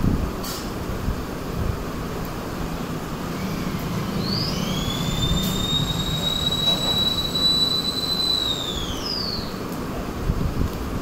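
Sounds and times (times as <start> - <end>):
high whistling tone: 2.6 - 9.6.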